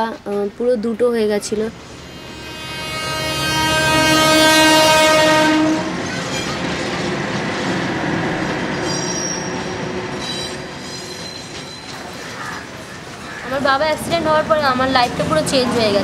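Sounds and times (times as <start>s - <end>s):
train rumbling past: 0.0s - 16.0s
train horn blaring: 1.8s - 11.1s
wheel squeals on rails: 8.7s - 13.2s.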